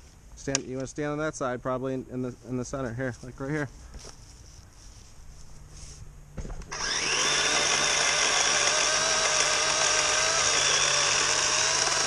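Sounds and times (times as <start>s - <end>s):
electric chainsaw cutting log: 6.6s - 12.0s.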